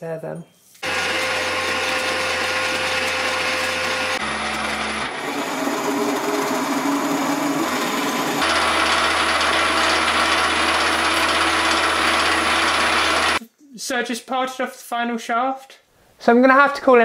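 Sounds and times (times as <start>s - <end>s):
lathe motor humming: 0.8s - 13.4s.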